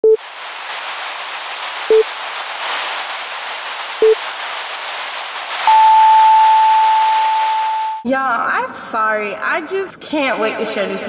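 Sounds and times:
tv static hiss: 0.1s - 7.7s.

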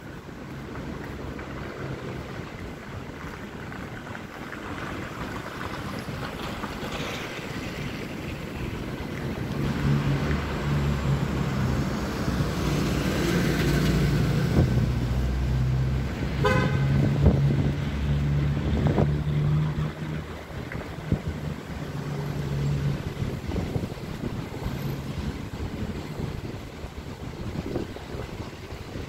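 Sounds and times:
street traffic: 0.0s - 29.0s
car horn beep: 16.4s - 17.0s.

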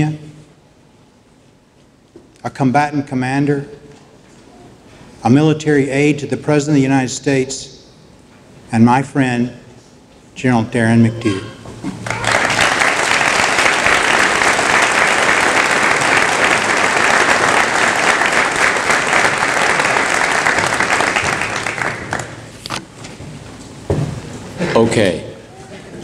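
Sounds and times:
audience applauding: 12.0s - 22.5s.

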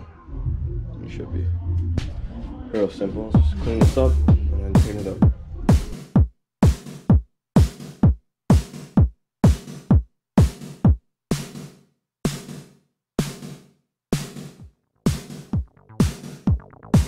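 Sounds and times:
electronic music drum-machine beat: 1.8s - 11.6s, 14.2s - 17.0s.

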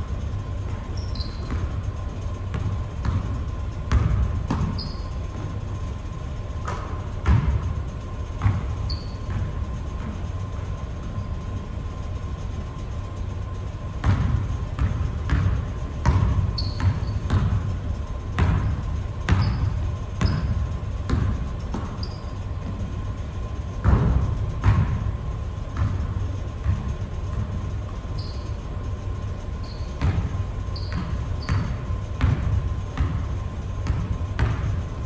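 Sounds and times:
low hum in hall: 0.0s - 35.0s
sneaker squeaks on court: 0.6s - 3.3s, 3.9s - 7.7s, 8.3s - 10.5s, 13.5s - 17.6s, 18.3s - 22.9s, 26.6s - 34.8s
basketball bouncing on hardwood floor: 1.0s - 1.8s, 2.5s - 5.6s, 6.6s - 7.7s, 8.3s - 10.2s, 14.0s - 17.7s, 18.3s - 22.8s, 23.8s - 25.1s, 25.7s - 28.4s, 29.6s - 34.9s.

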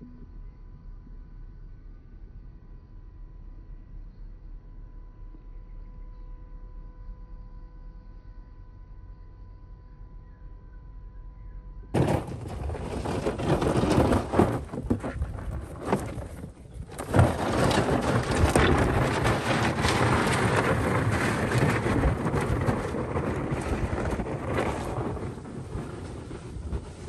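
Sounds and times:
plastic knocking and scraping: 12.0s - 27.0s
wind buffeting the microphone: 12.0s - 27.0s.

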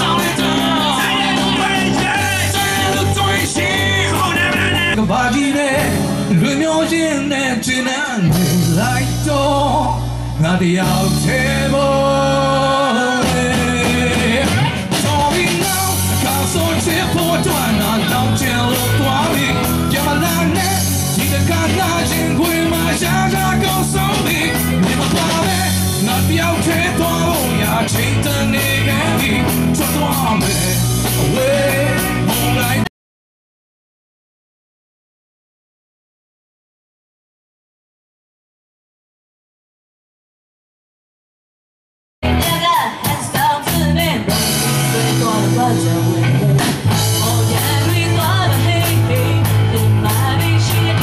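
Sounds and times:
drum kit beat: 0.0s - 7.3s, 8.2s - 32.9s, 42.2s - 51.0s
electric guitar: 0.0s - 32.9s, 42.2s - 51.0s
man singing into a microphone: 0.0s - 32.9s, 42.5s - 51.0s.

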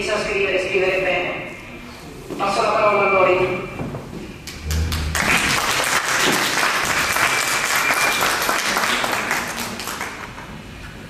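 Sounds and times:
audience applauding: 4.5s - 10.5s.

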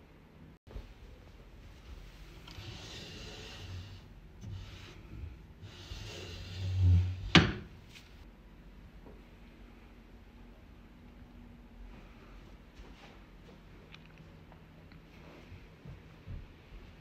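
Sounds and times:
wood rubbing: 2.2s - 8.2s.

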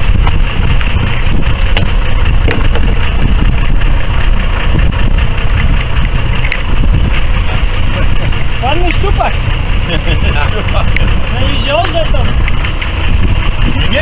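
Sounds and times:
boat engine rumbling: 0.0s - 14.0s.

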